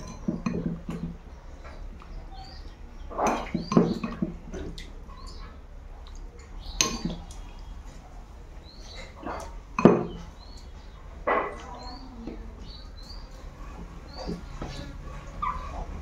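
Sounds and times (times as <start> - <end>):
chewing and mouth smacks: 4.5 - 8.0.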